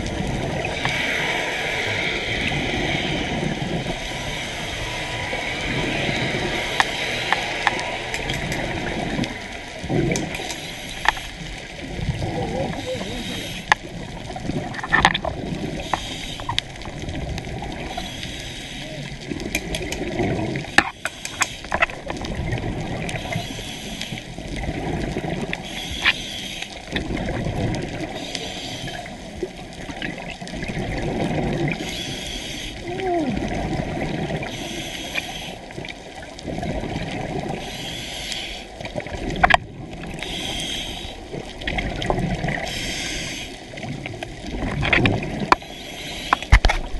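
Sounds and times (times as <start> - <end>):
exhaled bubbles gurgling: 0.0 - 46.9
rushing water: 0.0 - 46.9
diver breathing through regulator: 34.4 - 35.6, 37.6 - 38.8, 40.2 - 41.2, 42.6 - 43.7, 45.6 - 46.6.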